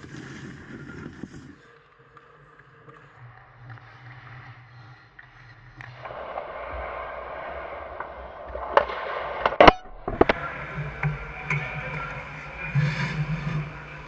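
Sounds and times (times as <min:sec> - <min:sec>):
skates scraping on ice: 0:00.0 - 0:01.7
stick hitting puck: 0:08.6 - 0:10.4.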